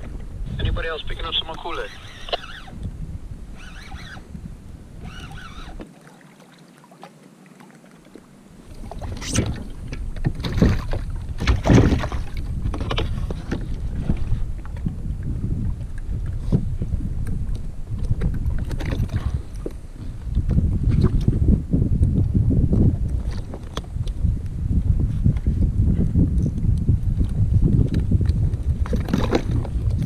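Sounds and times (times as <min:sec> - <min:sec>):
wind rumbling on microphone: 0:00.0 - 0:05.9, 0:08.1 - 0:30.0
water splashes: 0:05.0 - 0:14.9.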